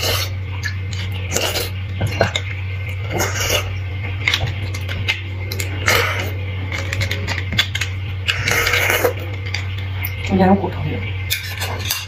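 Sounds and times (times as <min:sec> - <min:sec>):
sucking slurping hiss: 0:00.0 - 0:00.4, 0:03.0 - 0:03.9, 0:05.5 - 0:06.5, 0:08.2 - 0:09.3
wet biting and chewing: 0:00.0 - 0:10.2
steady low hum: 0:00.0 - 0:12.0.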